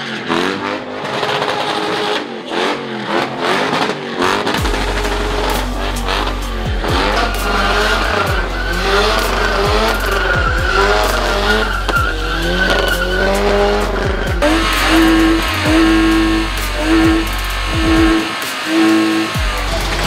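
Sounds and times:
car engines revving: 0:00.0 - 0:20.0
music: 0:04.4 - 0:20.0
tyres squealing: 0:04.4 - 0:20.0.

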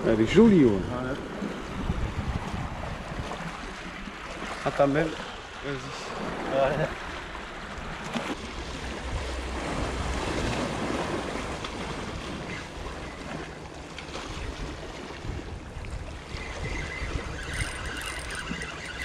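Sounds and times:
wind buffeting microphone: 0:00.0 - 0:04.4, 0:14.1 - 0:19.0.

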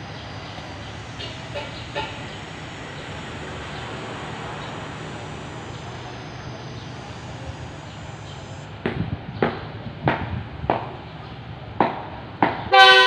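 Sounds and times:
distant diesel locomotive drone: 0:00.0 - 0:13.0
train horn blast: 0:01.1 - 0:05.4, 0:12.7 - 0:13.0.

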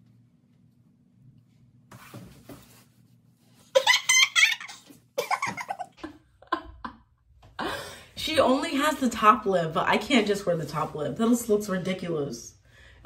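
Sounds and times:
woman laughing: 0:03.8 - 0:07.9.

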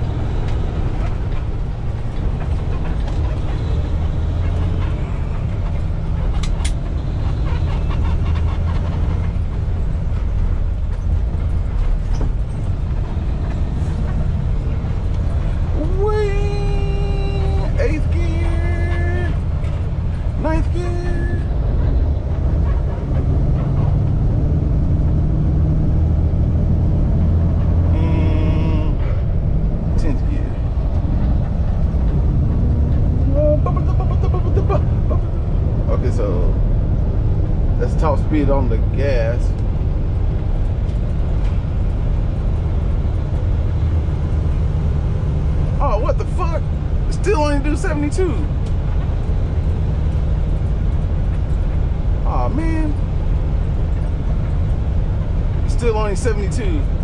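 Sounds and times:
truck engine and road drone: 0:00.0 - 0:57.0.

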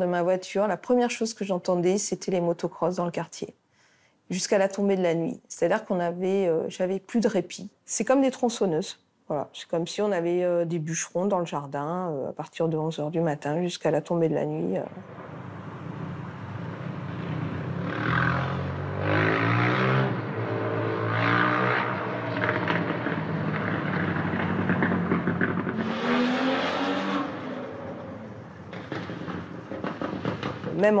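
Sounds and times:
motocross bikes revving: 0:17.9 - 0:25.1.

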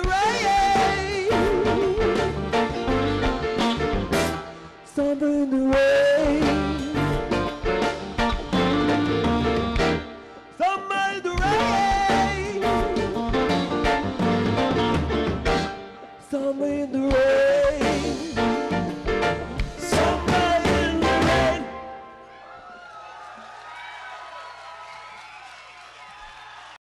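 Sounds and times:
man singing: 0:00.0 - 0:02.6, 0:04.8 - 0:07.5, 0:10.5 - 0:13.2, 0:16.2 - 0:18.8, 0:19.7 - 0:21.9
live rock band playing: 0:00.0 - 0:22.0.

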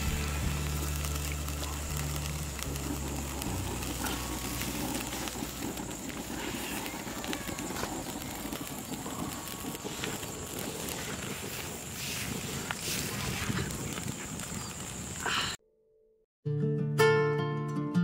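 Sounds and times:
low background music: 0:00.0 - 0:04.0
wind buffeting microphone: 0:00.7 - 0:15.6.

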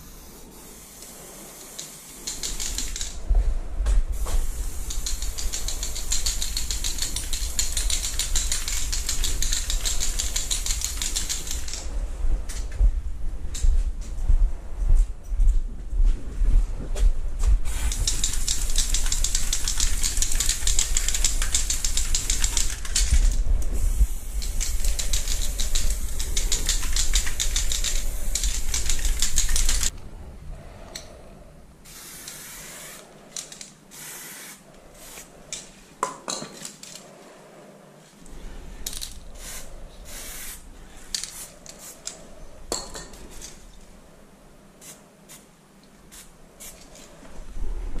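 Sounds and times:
spray can hissing: 0:00.0 - 0:03.2, 0:04.2 - 0:11.8, 0:17.7 - 0:23.2, 0:23.8 - 0:29.9, 0:31.9 - 0:33.1, 0:33.9 - 0:35.3, 0:38.9 - 0:40.6, 0:44.8 - 0:45.5
low rumble: 0:11.8 - 0:17.9.

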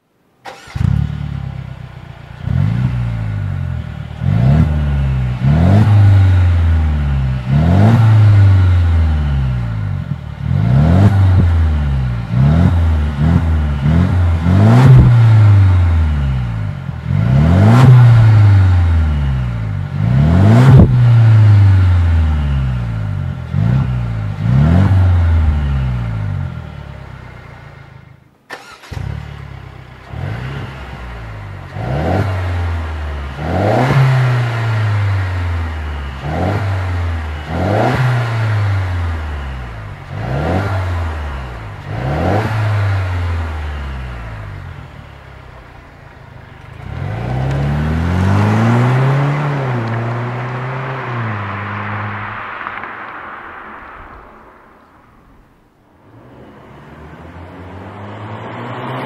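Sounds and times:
car engine revving: 0:00.4 - 0:59.0.

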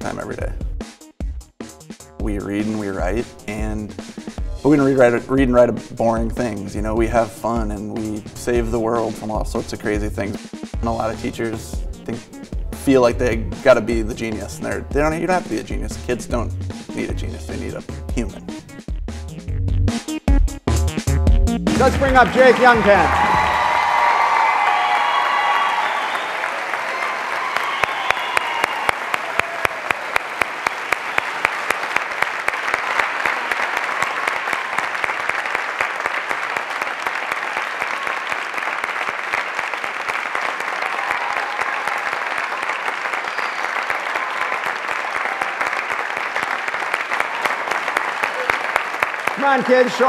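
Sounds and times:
audience applause: 0:21.7 - 0:50.0
loud individual claps: 0:21.7 - 0:50.0.

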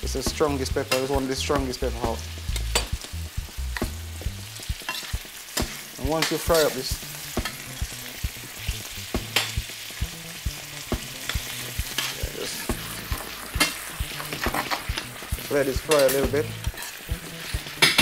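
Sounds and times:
food sizzling in a frying pan: 0:00.0 - 0:18.0
metal spoon scraping a pan: 0:04.8 - 0:07.8, 0:10.8 - 0:18.0.

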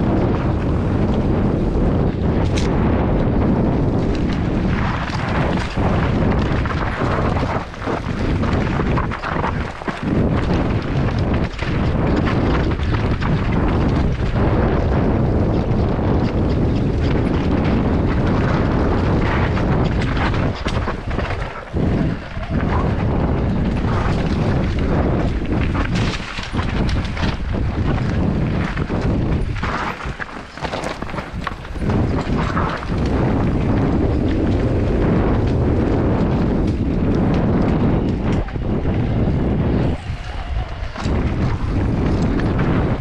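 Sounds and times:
mountain bike rumbling and rattling: 0:00.0 - 0:43.0
wind buffeting microphone: 0:00.0 - 0:43.0.

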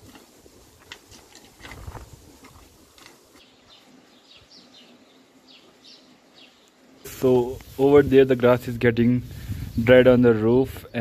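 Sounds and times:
footsteps on stony path: 0:00.0 - 0:03.8
bird chirping: 0:03.4 - 0:07.1.

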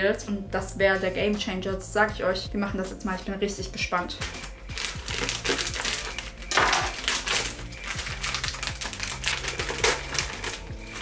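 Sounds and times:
plastic packet crinkling: 0:04.3 - 0:11.0.

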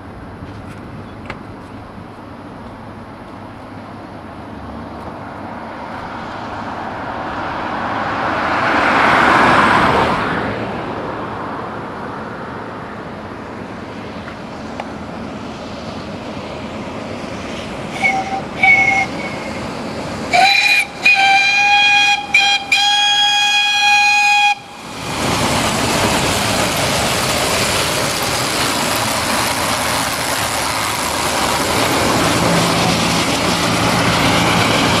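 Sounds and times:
steam truck passing by: 0:01.6 - 0:35.0
steam whistle: 0:17.9 - 0:19.6, 0:20.3 - 0:24.9
steady rushing noise: 0:24.5 - 0:35.0.

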